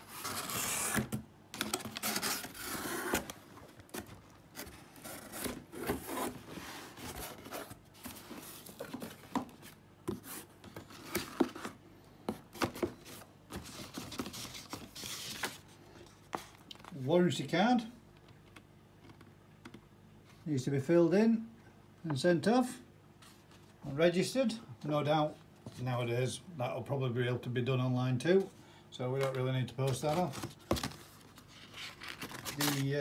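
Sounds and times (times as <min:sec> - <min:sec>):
cardboard and paper rustling: 0:00.0 - 0:17.0, 0:29.2 - 0:33.0.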